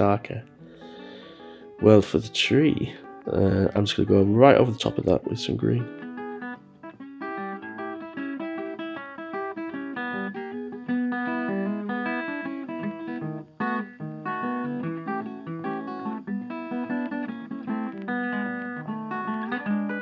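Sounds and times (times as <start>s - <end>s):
plucked guitar instrumental: 0.0s - 20.0s.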